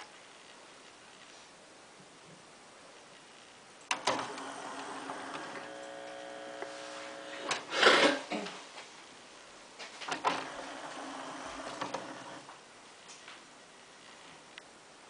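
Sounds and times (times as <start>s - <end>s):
cd changer clicks: 3.9s - 7.7s, 10.1s - 12.5s
tray motor and gears whirring: 3.9s - 7.7s, 10.1s - 12.5s.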